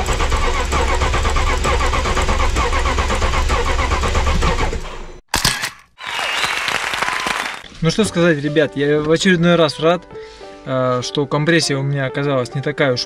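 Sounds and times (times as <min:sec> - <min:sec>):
starter motor cranking engine: 0:00.0 - 0:05.0.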